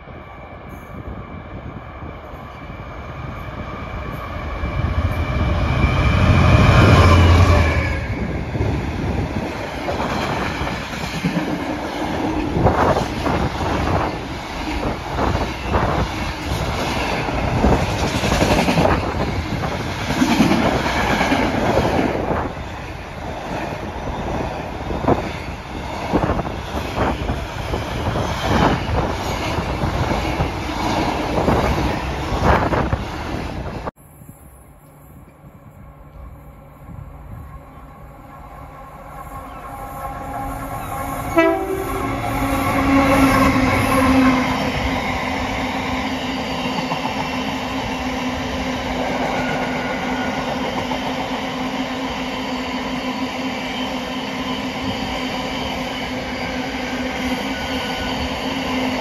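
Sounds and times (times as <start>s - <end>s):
diesel locomotive passing: 0.0s - 59.0s.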